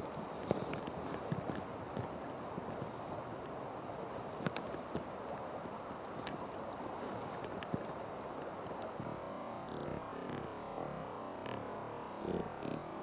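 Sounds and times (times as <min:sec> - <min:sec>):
river water lapping and flowing: 0:00.0 - 0:13.0
small sharp clicks or splashes: 0:04.3 - 0:05.4, 0:06.2 - 0:09.0.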